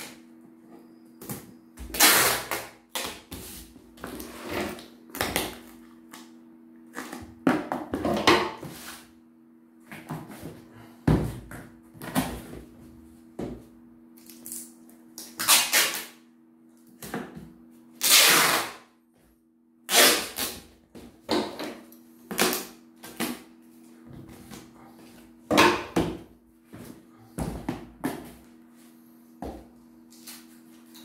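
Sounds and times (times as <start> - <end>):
packing tape pulled off roll: 1.9 - 3.2, 14.2 - 16.2, 18.0 - 18.8, 19.9 - 20.7.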